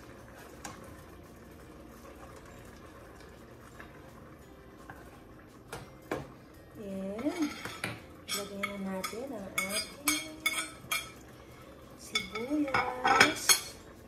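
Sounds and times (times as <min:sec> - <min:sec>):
soup bubbling in a pot: 0:00.0 - 0:14.0.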